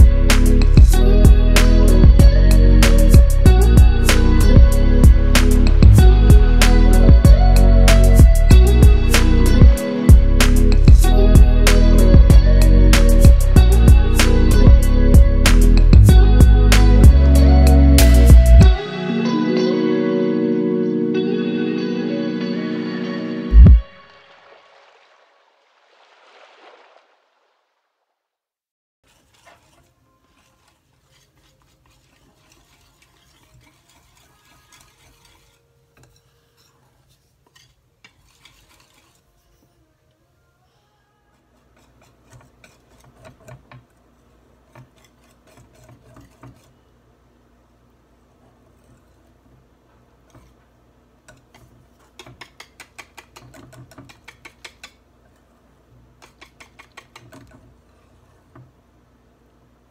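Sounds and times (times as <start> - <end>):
whisk scraping glass bowl: 29.0 - 39.5, 41.5 - 44.0, 44.6 - 46.8, 51.3 - 54.9, 56.2 - 58.3
whisk clicking against glass bowl: 56.2 - 57.6.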